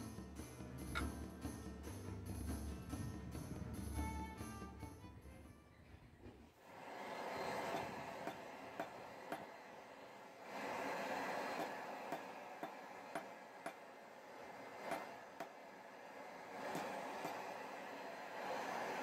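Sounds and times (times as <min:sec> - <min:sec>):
hammer striking steel on anvil: 0:00.9 - 0:01.3
steady rushing noise: 0:06.6 - 0:19.0.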